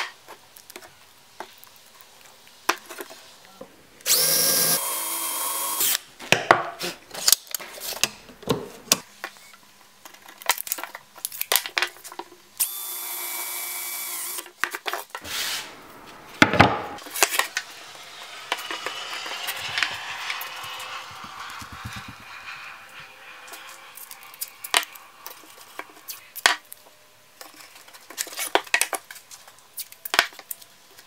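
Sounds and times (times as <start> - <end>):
cordless drill driving into wood: 4.1 - 6.0, 12.6 - 14.5.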